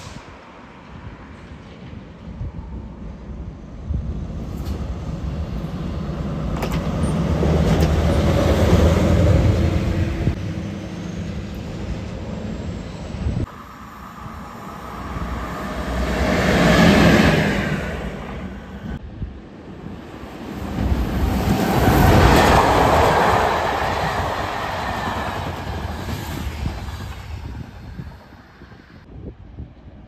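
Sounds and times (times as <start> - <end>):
locomotive rumbling past: 0.0 - 29.0.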